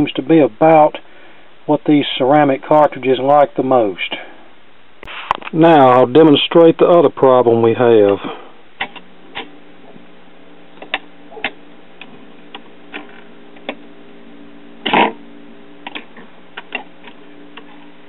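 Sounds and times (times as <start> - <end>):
steady hum: 0.0 - 18.0
record changer clicks and clunks: 8.8 - 10.1, 10.8 - 13.9, 15.8 - 17.8.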